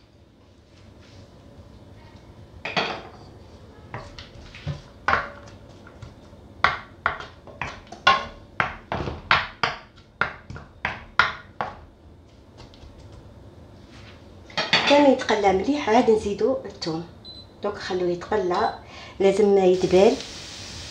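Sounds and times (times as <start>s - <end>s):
wooden spatula knocking a pan: 3.9s - 5.6s, 6.6s - 11.9s
onions sizzling in oil: 19.8s - 20.9s.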